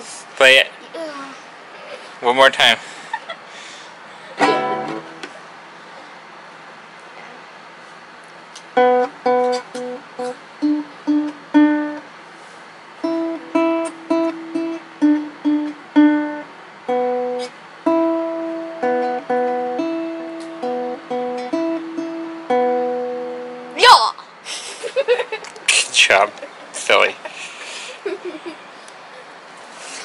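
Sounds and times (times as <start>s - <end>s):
nylon-string guitar plucked notes: 4.4s - 5.3s, 8.8s - 12.0s, 13.0s - 23.8s.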